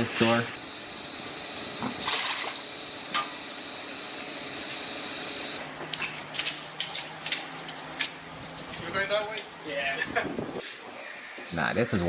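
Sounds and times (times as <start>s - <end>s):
steady high hiss: 0.0s - 6.1s.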